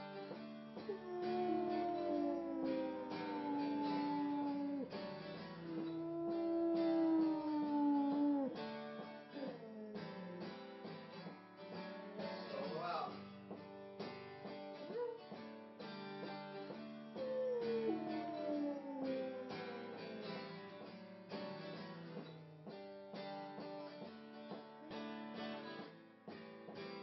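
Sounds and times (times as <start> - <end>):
acoustic guitar strumming: 0.0 - 27.0
dog howling: 0.9 - 10.6, 17.2 - 20.6.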